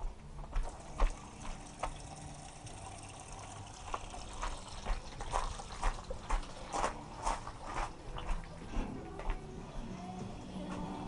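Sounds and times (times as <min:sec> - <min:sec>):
tap water running into sink: 0:00.7 - 0:06.9.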